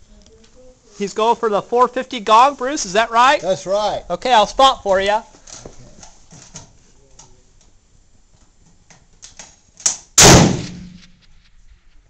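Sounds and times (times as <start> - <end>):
rifle shot with echo: 9.9 - 11.3.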